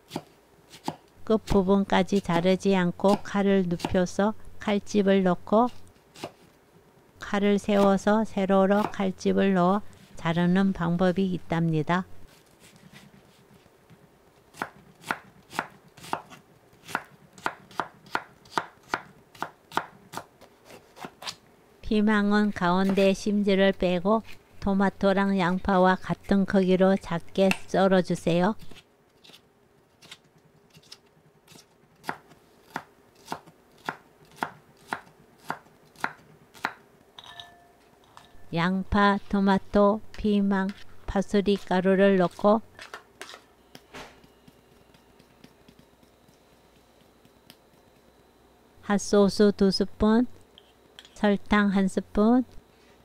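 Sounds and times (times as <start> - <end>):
knife chopping on wooden board: 14.5 - 21.1.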